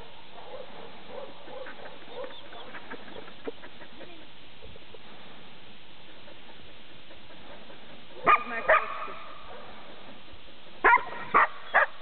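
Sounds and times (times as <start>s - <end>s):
dog barking: 0.4s - 2.4s, 8.2s - 9.8s, 10.8s - 12.0s.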